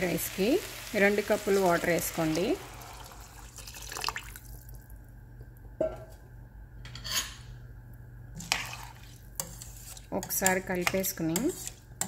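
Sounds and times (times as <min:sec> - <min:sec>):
low steady hum: 0:00.0 - 0:12.0
water pouring into a metal pot: 0:01.3 - 0:04.7.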